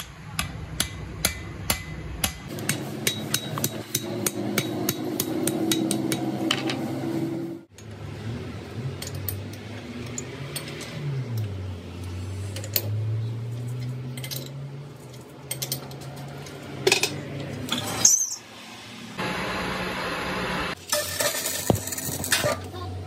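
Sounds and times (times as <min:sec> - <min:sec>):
metal tools clinking: 0:09.0 - 0:18.4.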